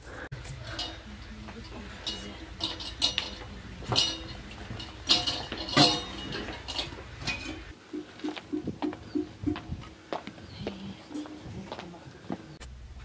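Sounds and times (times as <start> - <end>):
metal dishes and utensils clinking: 0.6 - 7.8
short low blips: 7.9 - 10.0.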